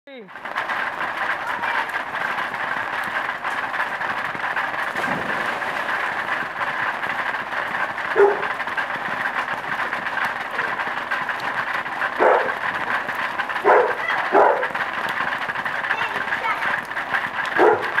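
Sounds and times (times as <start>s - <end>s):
water rushing: 1.0s - 18.0s
child splashing into pool: 4.8s - 7.4s.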